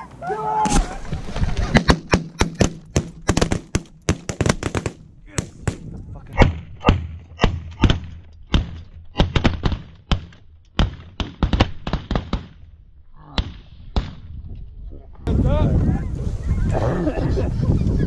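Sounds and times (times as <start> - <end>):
shotgun blasts: 1.7 - 12.7.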